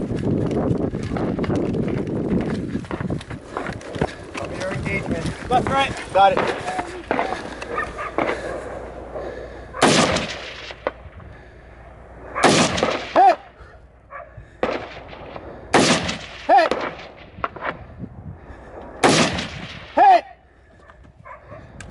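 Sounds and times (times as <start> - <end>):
sharp crack with ringing tone: 6.2 - 8.4, 9.8 - 11.2, 12.3 - 13.6, 14.6 - 17.9, 19.0 - 20.2
rifle shots: 6.2 - 9.2, 9.8 - 11.1, 12.2 - 13.4, 14.6 - 17.8, 19.0 - 20.2.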